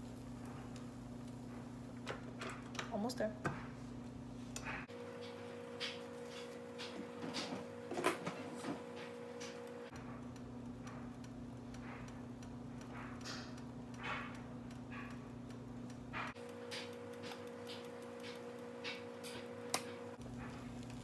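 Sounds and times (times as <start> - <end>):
panini press ticking: 9.2 - 21.0.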